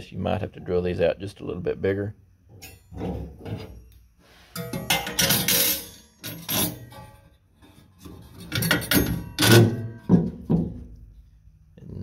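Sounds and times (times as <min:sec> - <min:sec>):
metal hardware clinking on sheet metal: 0:02.5 - 0:07.3, 0:08.0 - 0:10.6.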